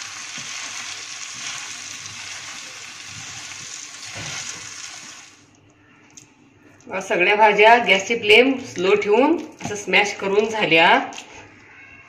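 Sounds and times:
vegetables sizzling in a pan: 0.0s - 5.4s.

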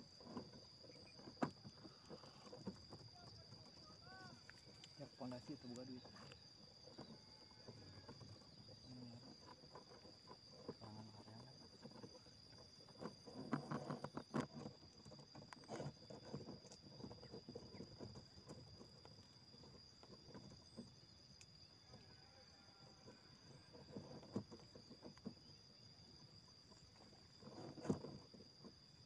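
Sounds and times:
soft rustles and clicks: 0.0s - 22.2s
high insect drone: 0.0s - 29.0s.

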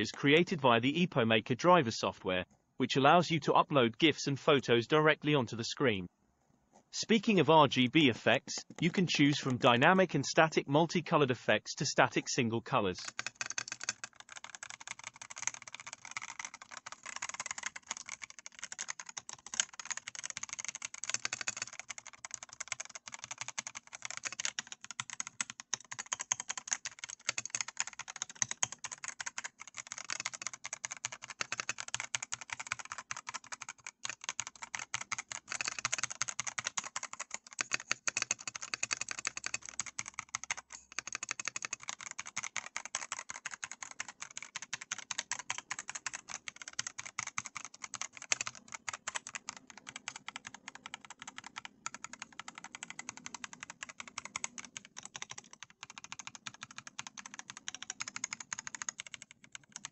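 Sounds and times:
mechanical keyboard typing: 7.1s - 59.9s.

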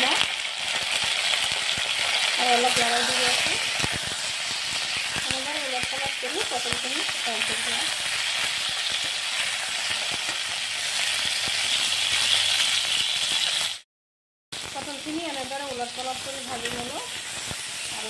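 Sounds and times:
vegetables sizzling in oil: 0.0s - 13.8s, 14.6s - 18.0s.

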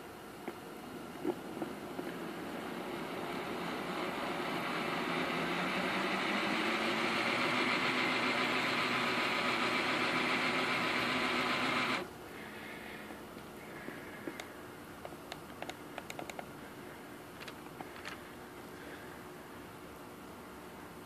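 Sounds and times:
model locomotive motor whirring: 2.1s - 12.1s.

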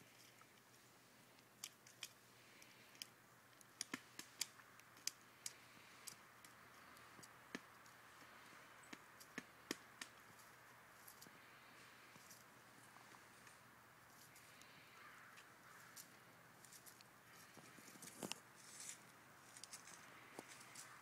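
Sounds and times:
woodpecker pecking wood: 1.3s - 13.6s.

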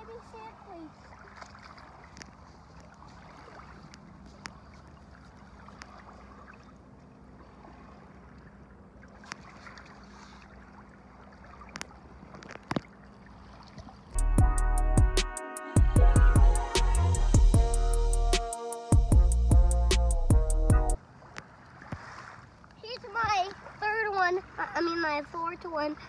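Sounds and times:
water washing on shoreline: 0.0s - 14.2s, 21.0s - 26.0s.

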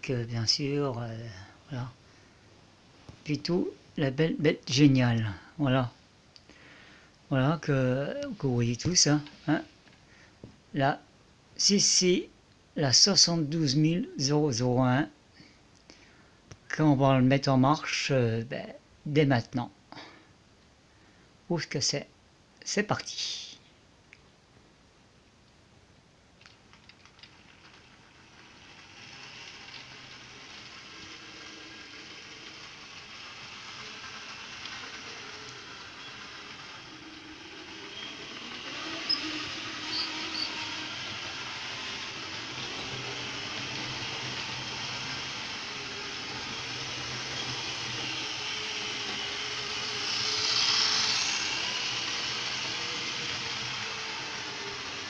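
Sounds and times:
model train wheels rattling on rail: 26.4s - 55.0s.

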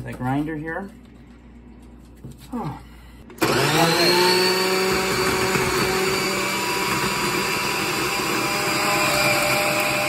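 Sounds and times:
food processor motor whirring: 3.3s - 10.0s.

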